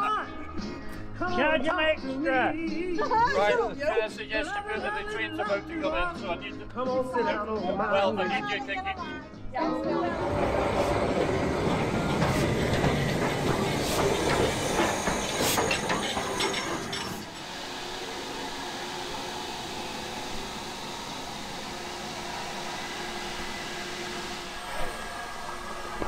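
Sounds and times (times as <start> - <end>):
coaches rattling: 9.9 - 17.4
train wheels clicking: 10.0 - 26.0
steam hissing from locomotive: 10.2 - 26.0.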